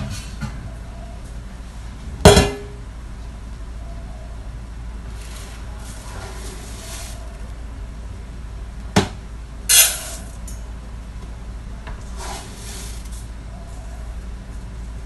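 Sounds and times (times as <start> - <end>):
rustling and scooping in a bin: 5.0 - 7.6, 12.0 - 13.3
rice grains rattling into a pot: 5.1 - 7.5.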